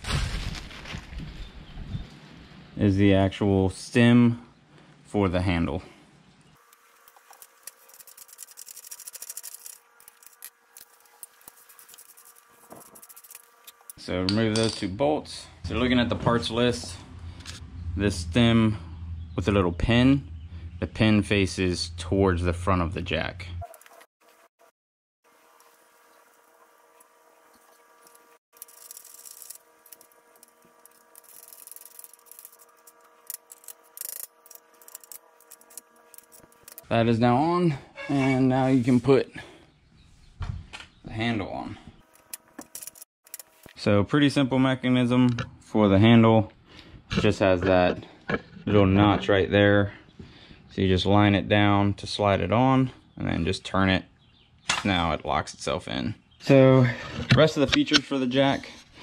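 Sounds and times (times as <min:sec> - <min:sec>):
ratchet wrench clicking: 0:30.9 - 0:32.7, 0:33.3 - 0:36.8.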